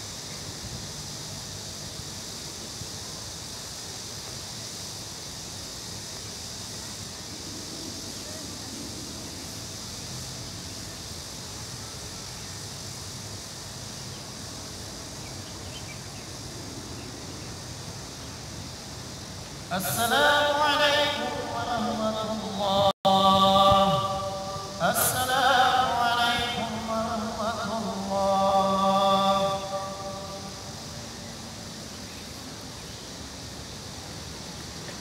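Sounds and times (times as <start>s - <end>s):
outdoor background hiss: 0.0s - 35.0s
faint distant voices: 6.1s - 13.1s
person chanting a prayer loudly: 19.7s - 31.2s.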